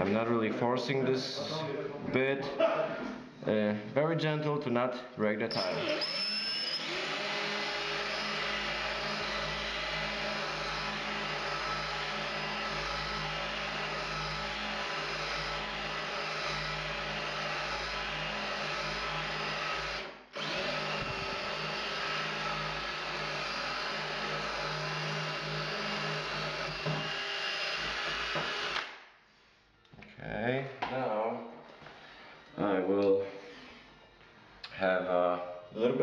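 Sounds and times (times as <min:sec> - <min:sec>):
cordless drill grinding into tile: 0:05.5 - 0:28.9.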